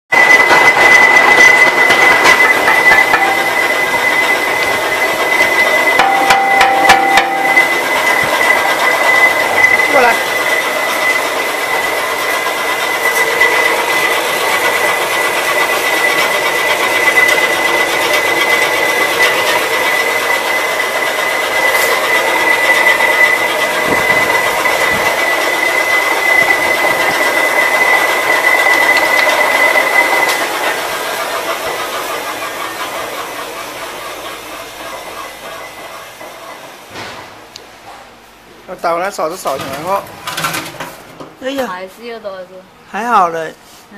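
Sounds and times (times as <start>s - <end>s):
roller crusher mechanical clatter: 0.1s - 41.9s
high steady whine: 0.2s - 30.7s.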